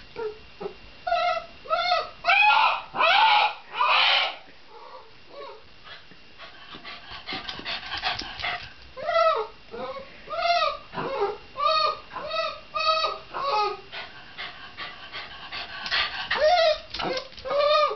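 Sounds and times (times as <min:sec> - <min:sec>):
dog whining: 0:00.2 - 0:05.7, 0:09.0 - 0:13.9, 0:16.2 - 0:17.9.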